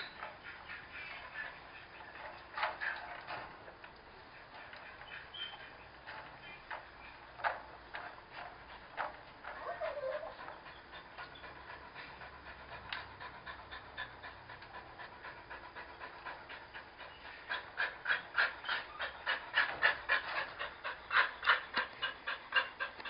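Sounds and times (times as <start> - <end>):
dog panting: 0.0 - 23.0.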